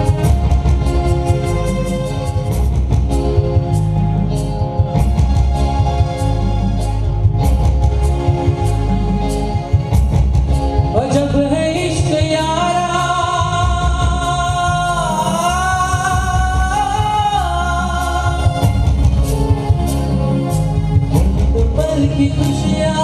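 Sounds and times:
instrumental backing with beat: 0.0 - 23.0
man singing into microphone: 10.9 - 18.8, 21.1 - 23.0.

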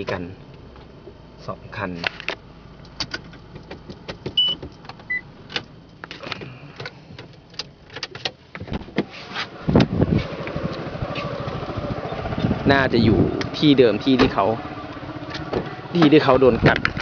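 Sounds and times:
car interior clicks and rattles: 0.0 - 1.2, 1.8 - 11.6, 15.3 - 17.0
high beeps: 4.4 - 5.2.

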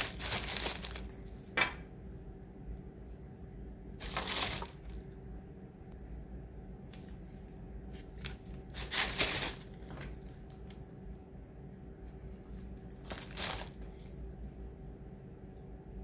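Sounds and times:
paper and plastic crinkling: 0.0 - 1.5, 4.0 - 5.0, 8.0 - 10.8, 12.6 - 14.2.

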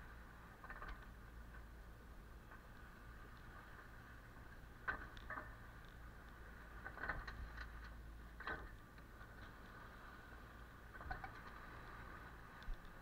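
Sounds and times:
low steady rumble: 0.0 - 13.0
water washing along hull: 0.0 - 13.0
wave splashes: 2.8 - 13.0.

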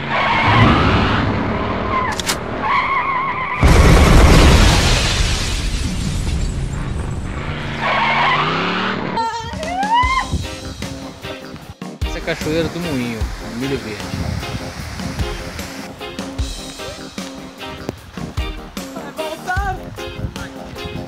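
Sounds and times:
loud crash: 3.6 - 7.9
music: 9.2 - 21.0.

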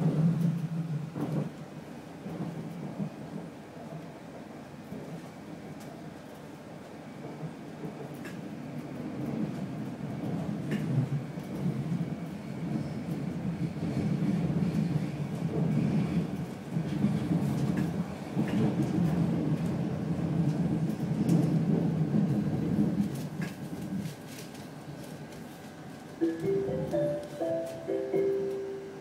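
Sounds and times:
train rumbling from inside carriage: 0.0 - 29.0.

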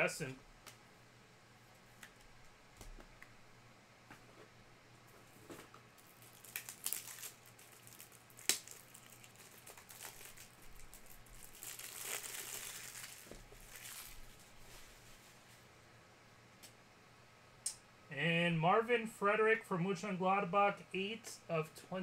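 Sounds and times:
plastic packaging crinkling: 6.0 - 15.3.

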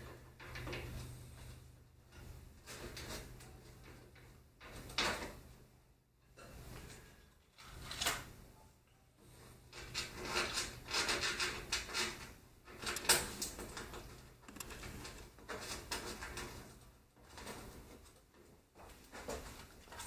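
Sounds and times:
metal scraping on metal: 9.3 - 16.7
small metal clicks: 11.0 - 15.2.

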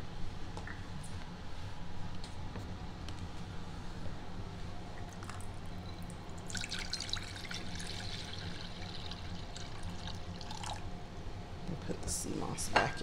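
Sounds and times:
water pouring into glass bowl: 5.1 - 10.8.

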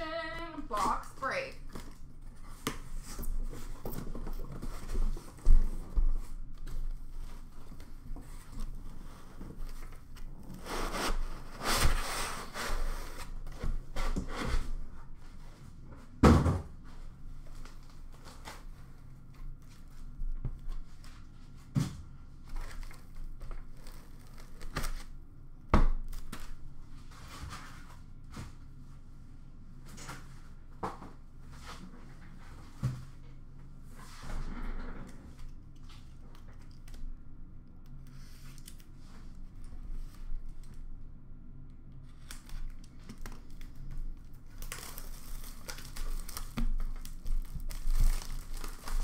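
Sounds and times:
cardboard rustling and scraping: 1.7 - 15.8.

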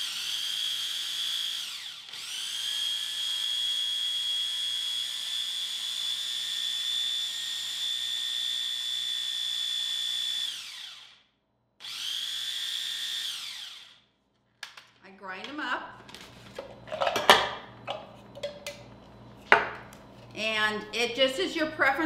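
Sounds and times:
food processor motor whining: 0.0 - 14.0.

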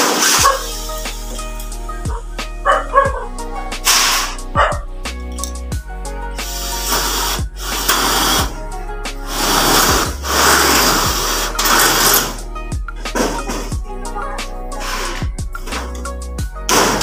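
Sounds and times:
background music with beat: 0.2 - 17.0
cordless drill drilling: 6.5 - 8.6, 9.3 - 12.4.

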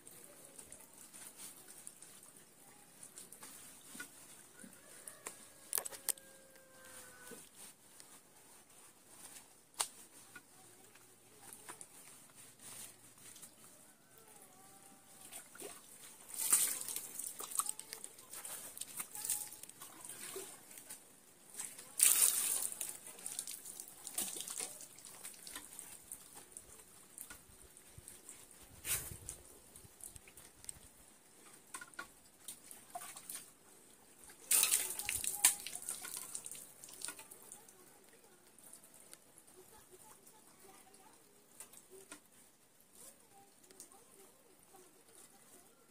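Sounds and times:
water splashing by hand: 15.4 - 20.7, 21.6 - 26.5, 34.4 - 37.3.

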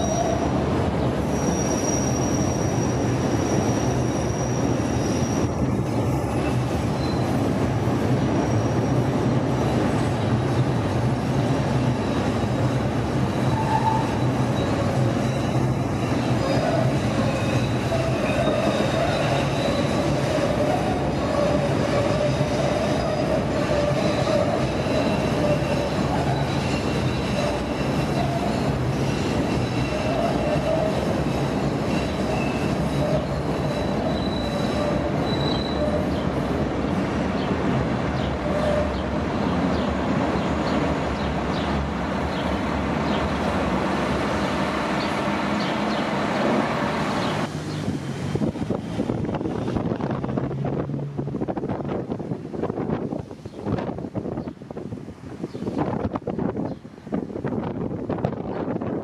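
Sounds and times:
wheels squealing: 0.0 - 7.5, 11.2 - 36.6, 38.2 - 43.3
train wheels rumbling: 0.0 - 59.0.

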